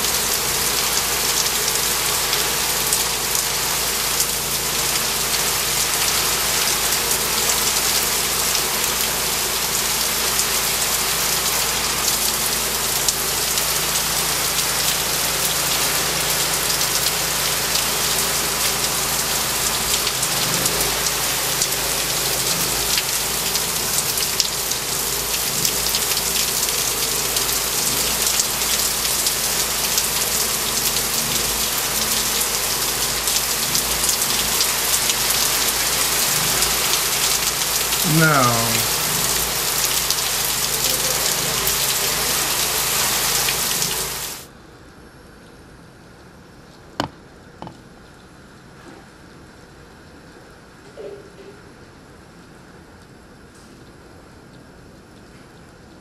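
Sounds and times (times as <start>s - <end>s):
heavy rain pouring: 0.0s - 44.5s.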